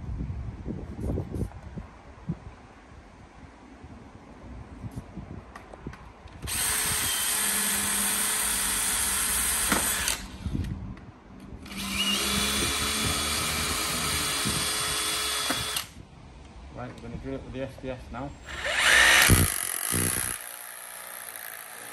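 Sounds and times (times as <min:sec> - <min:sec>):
drill motor whine: 0:06.4 - 0:10.4, 0:11.7 - 0:15.9, 0:18.4 - 0:21.9
cordless drill boring into plastic: 0:06.4 - 0:10.7, 0:11.7 - 0:16.0, 0:18.5 - 0:21.9.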